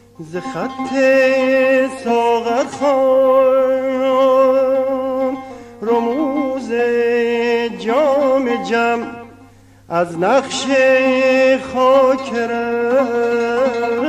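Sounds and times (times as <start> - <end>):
man singing with vibrato: 0.0 - 14.0.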